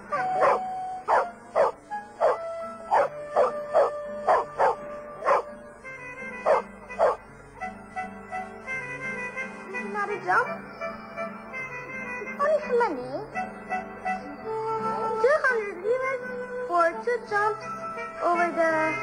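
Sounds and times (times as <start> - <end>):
background music with held notes: 0.0 - 19.0
dog barking: 0.1 - 5.5, 6.4 - 7.2.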